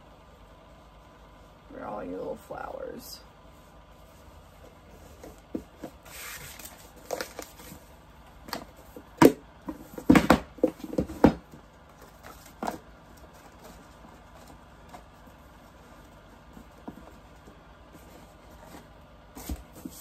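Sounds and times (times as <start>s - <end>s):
packaging rustle and crinkle: 4.8s - 8.8s, 11.8s - 20.0s.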